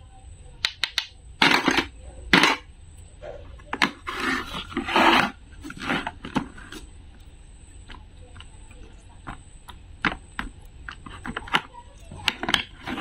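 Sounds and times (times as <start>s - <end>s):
toy food pieces scraping: 3.7s - 6.9s, 10.0s - 13.0s.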